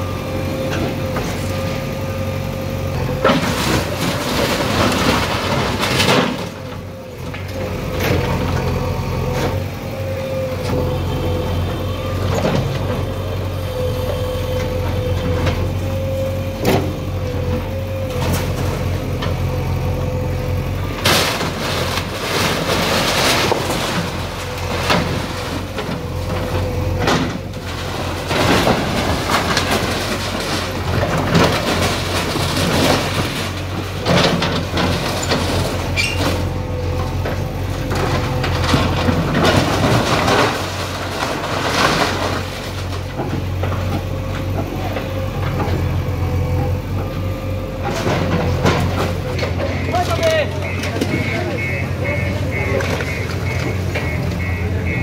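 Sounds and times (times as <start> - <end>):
crunching and scraping demolition: 0.0 - 55.0
diesel earthmover engine whining: 0.0 - 55.0.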